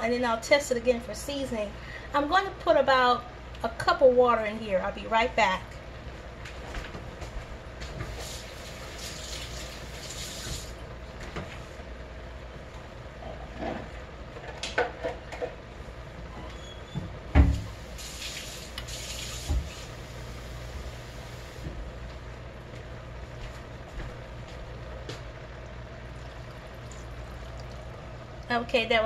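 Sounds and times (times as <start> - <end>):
steady low hum: 0.0 - 29.0
tap water filling a cup: 26.2 - 28.0.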